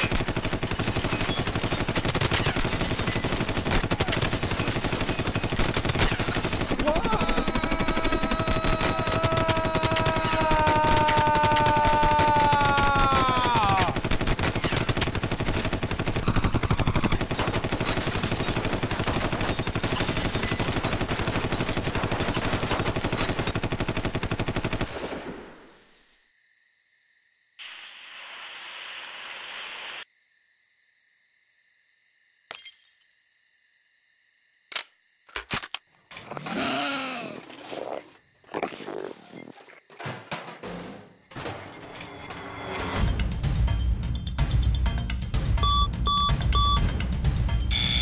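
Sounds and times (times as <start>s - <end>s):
submachine gun rapid burst: 0.0s - 25.0s.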